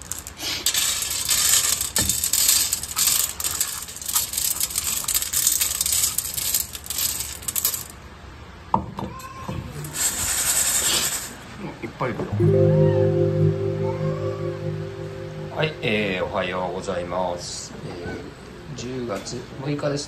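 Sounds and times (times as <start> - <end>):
kibble rattling on metal tray: 0.0 - 8.0.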